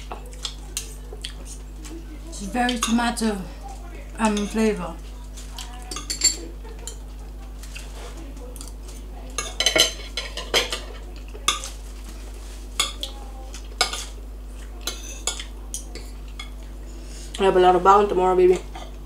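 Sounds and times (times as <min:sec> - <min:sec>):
cutlery clinking on plates: 0:04.2 - 0:04.8, 0:05.6 - 0:08.0, 0:08.6 - 0:11.8, 0:13.8 - 0:14.2, 0:14.8 - 0:16.6.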